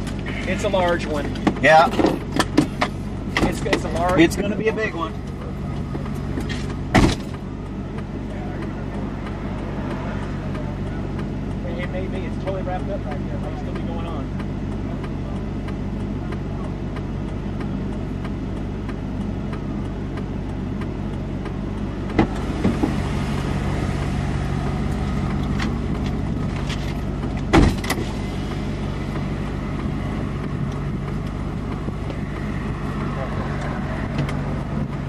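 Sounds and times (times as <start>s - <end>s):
vehicle engine idling: 0.0s - 35.0s
sharp knocks: 6.3s - 7.4s.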